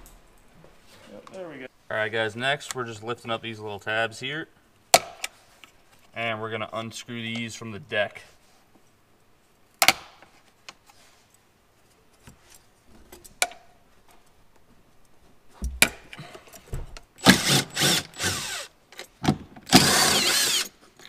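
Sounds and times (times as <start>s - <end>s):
impact driver running: 17.2s - 18.7s, 19.7s - 20.8s.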